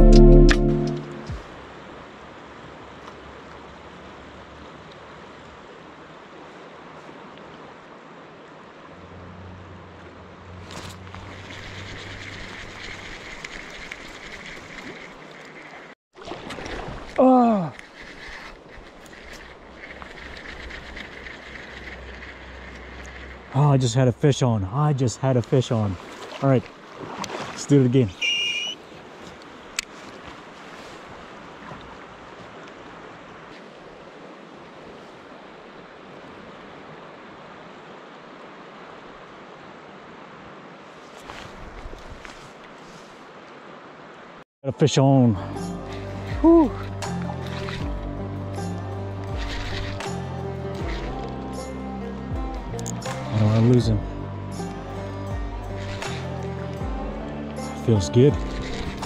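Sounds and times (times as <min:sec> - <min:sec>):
short scratchy sound: 0:00.0 - 0:01.4
river rushing over gravel: 0:10.6 - 0:44.0.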